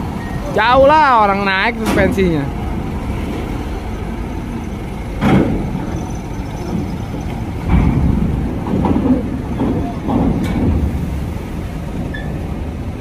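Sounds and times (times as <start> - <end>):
diesel engine rumbling: 0.0 - 13.0.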